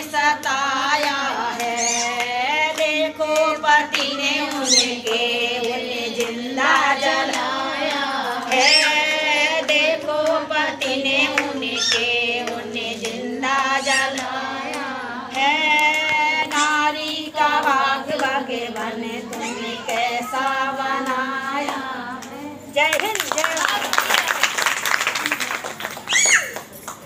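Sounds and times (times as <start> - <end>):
woman singing unaccompanied: 0.0 - 23.9
hands clapping in time: 14.1 - 27.0.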